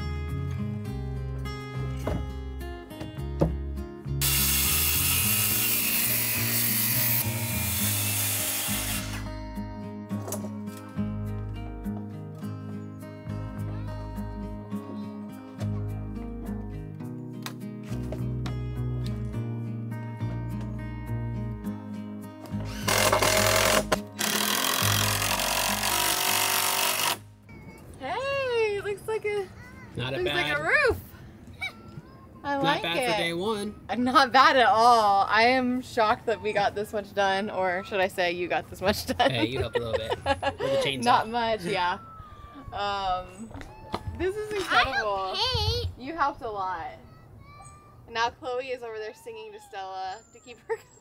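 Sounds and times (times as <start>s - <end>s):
background music: 0.0s - 27.5s
power tool working wood: 4.2s - 9.4s, 22.6s - 27.2s.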